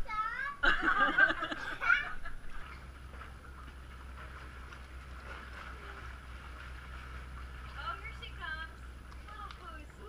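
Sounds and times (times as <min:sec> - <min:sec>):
steady low hum: 0:00.0 - 0:10.0
muffled watery noise: 0:02.0 - 0:10.0.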